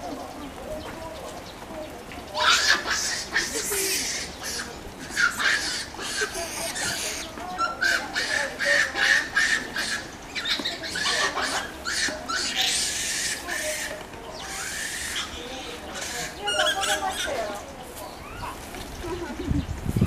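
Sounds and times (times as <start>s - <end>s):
monkeys squeaking and chirping: 2.3s - 19.6s.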